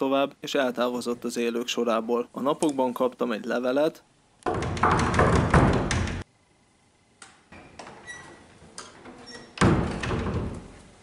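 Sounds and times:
door unlatching and opening: 7.5s - 10.8s.

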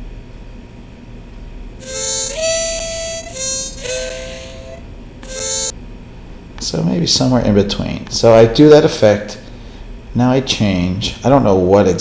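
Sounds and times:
pitch-shifted held notes: 1.8s - 5.7s.

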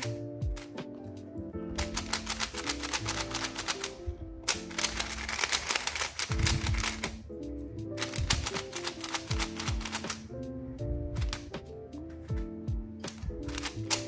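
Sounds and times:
background music: 0.0s - 14.0s
puzzle cube clicking: 1.8s - 7.2s, 8.0s - 10.3s, 13.1s - 14.0s.

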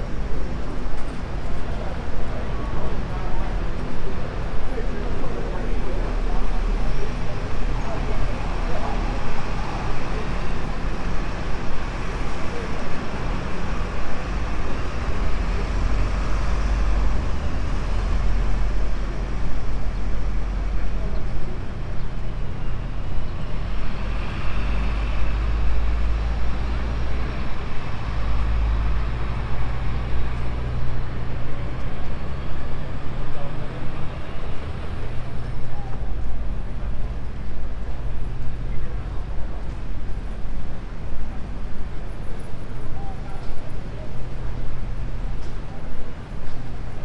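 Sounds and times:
road traffic rumble: 0.0s - 47.0s
people talking: 1.6s - 10.8s.

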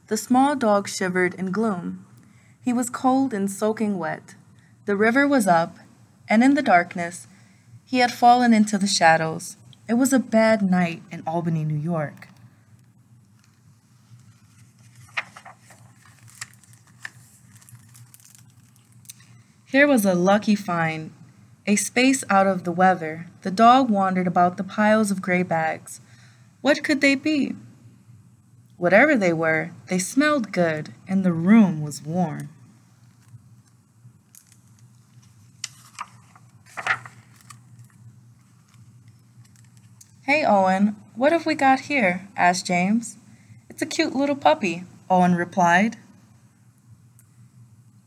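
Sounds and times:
faint steady hum: 0.0s - 48.0s
book pages rustling: 13.3s - 19.3s, 33.0s - 40.1s.

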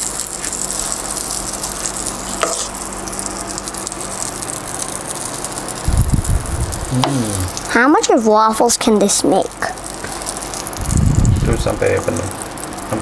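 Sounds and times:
butter sizzling: 0.0s - 13.0s
low bumps: 5.9s - 7.2s, 10.8s - 11.8s.

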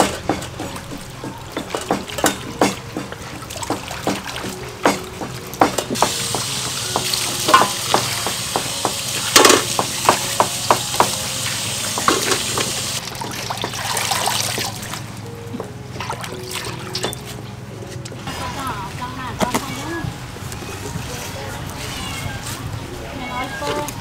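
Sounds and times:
clinks against metal basin: 0.0s - 11.3s, 12.0s - 13.9s, 16.8s - 17.4s
water splashing and dripping: 0.0s - 18.2s.

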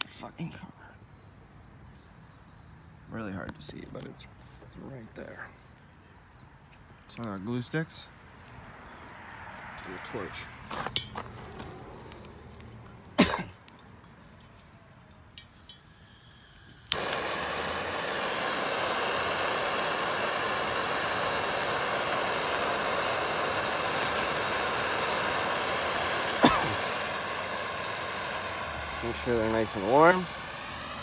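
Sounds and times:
torch flame hissing: 15.4s - 31.0s
hand torch lighting with a pop: 16.5s - 28.5s.

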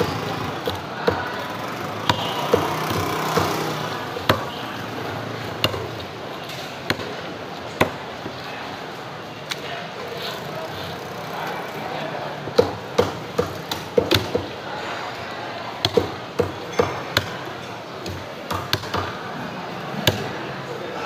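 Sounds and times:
cleaver chopping fish on wood: 0.0s - 4.6s, 5.6s - 6.0s, 15.8s - 17.4s, 18.0s - 19.2s.

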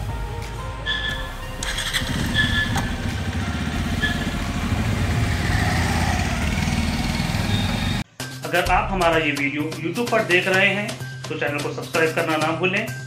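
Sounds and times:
motorcycle engine idling: 1.6s - 8.0s.

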